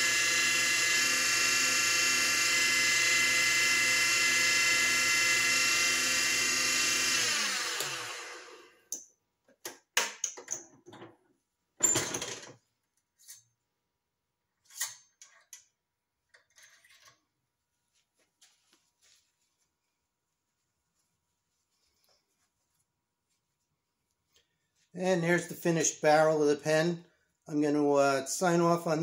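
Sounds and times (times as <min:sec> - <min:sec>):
wood lathe whining: 0:00.0 - 0:08.8.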